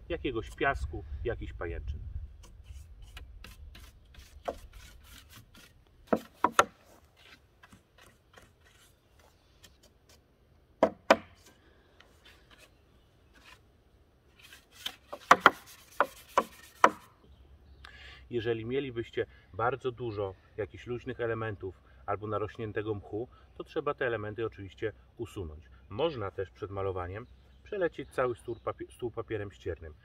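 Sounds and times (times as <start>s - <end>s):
brush sweeping wooden table: 14.3s - 17.1s.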